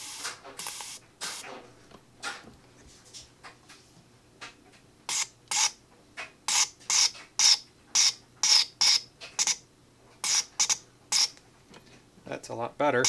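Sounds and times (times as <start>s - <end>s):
injector nozzle hissing spray bursts: 0.0s - 1.4s.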